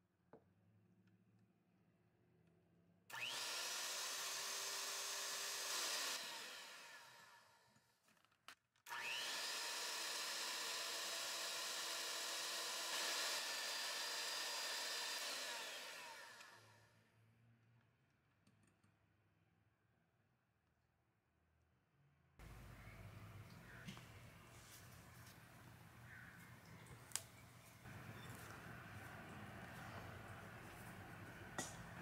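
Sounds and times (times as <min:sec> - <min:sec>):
electric hand mixer whining: 0:03.1 - 0:07.5, 0:08.9 - 0:16.8.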